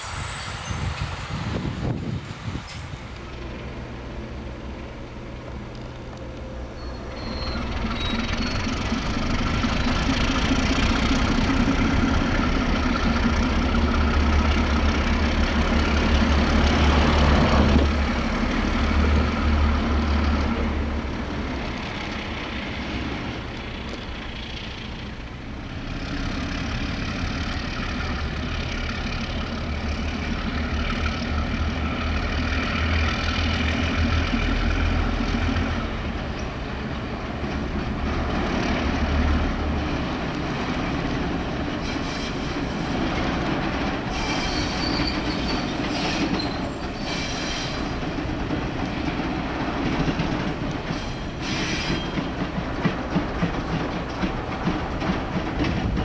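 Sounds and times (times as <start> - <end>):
train wheels squealing: 0.0 - 3.0, 6.5 - 9.4, 41.7 - 43.0, 44.1 - 48.0, 50.8 - 53.4
diesel locomotive engine running: 0.0 - 56.0.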